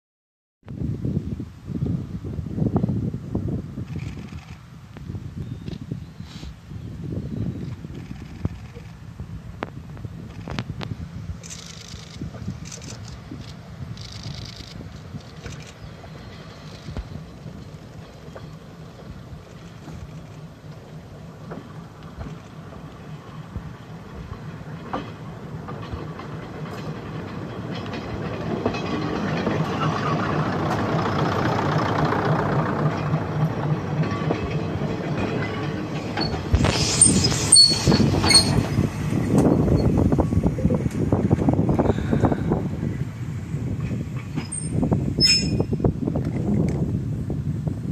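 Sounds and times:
diesel railcar engine and wheels: 0:00.7 - 0:47.9
brakes squealing: 0:34.0 - 0:41.9, 0:43.6 - 0:45.9.

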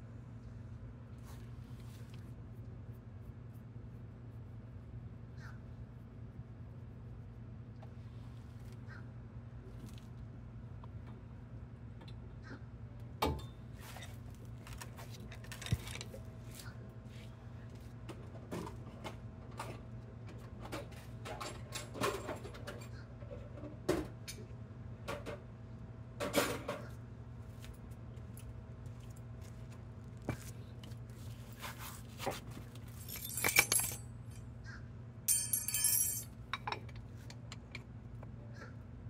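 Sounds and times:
steady low hum: 0:00.0 - 0:21.3, 0:24.2 - 0:39.0
metallic clinks of tools: 0:32.9 - 0:34.4, 0:35.3 - 0:36.8.

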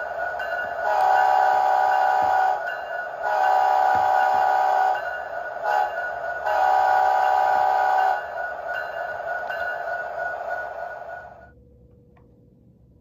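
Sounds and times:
diesel horn blasts: 0:00.8 - 0:02.6, 0:03.2 - 0:05.0, 0:05.6 - 0:08.3.

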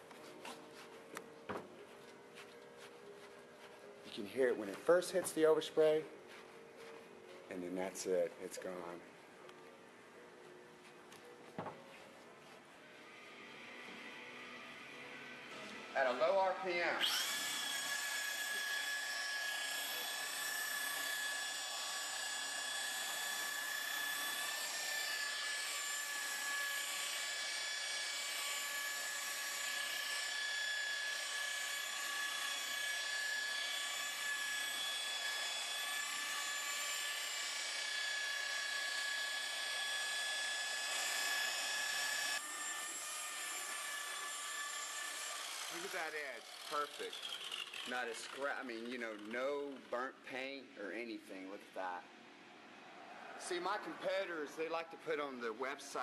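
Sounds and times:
electric polisher motor whine: 0:11.2 - 0:49.3.

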